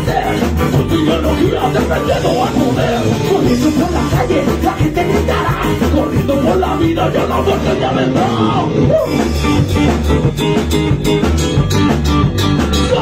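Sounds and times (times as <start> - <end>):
person singing: 0.0 - 9.8, 12.7 - 13.0
bass guitar: 0.0 - 13.0
drum kit beat: 0.0 - 13.0
electric guitar: 0.0 - 13.0.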